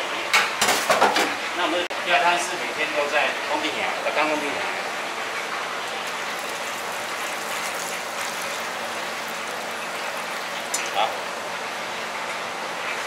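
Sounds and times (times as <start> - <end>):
liquid pouring and splashing: 4.4 - 13.0.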